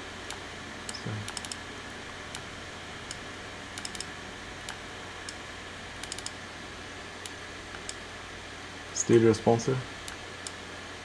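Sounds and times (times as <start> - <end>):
steady low hum: 0.0 - 11.0
computer clicks: 0.2 - 5.4, 6.0 - 6.4.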